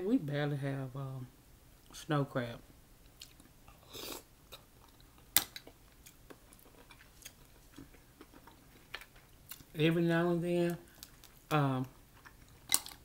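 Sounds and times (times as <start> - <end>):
quiet chewing with clicks: 3.0 - 3.8, 4.5 - 9.7, 10.8 - 13.0.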